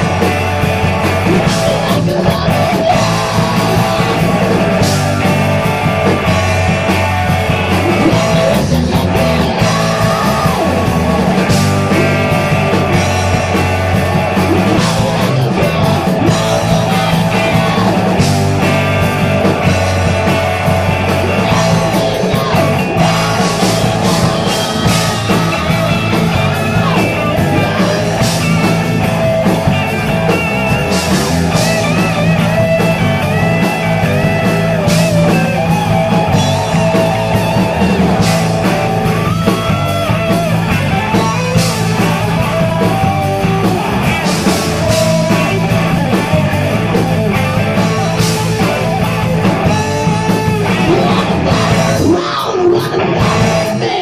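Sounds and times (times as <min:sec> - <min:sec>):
bending lead guitar line: 0:00.0 - 0:54.0
hard rock band playing live: 0:00.0 - 0:54.0.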